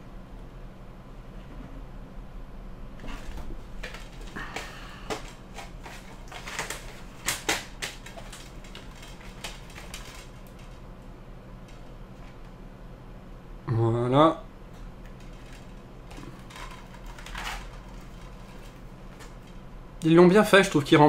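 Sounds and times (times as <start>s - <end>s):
cardboard rustling: 3.0s - 10.8s.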